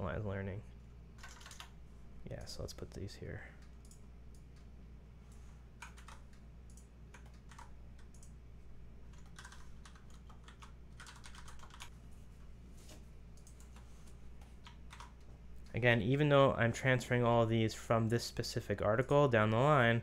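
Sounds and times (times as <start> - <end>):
computer keyboard typing: 1.2 - 1.8, 3.6 - 4.7, 5.8 - 8.4, 9.1 - 11.9, 13.4 - 15.3.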